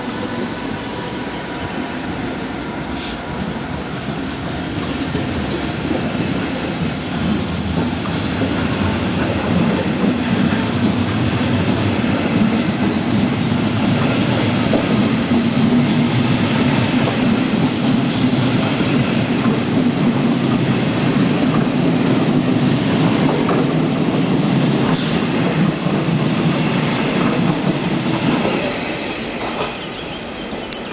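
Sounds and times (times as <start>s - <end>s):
train wheels clacking on rails: 1.7s - 30.9s.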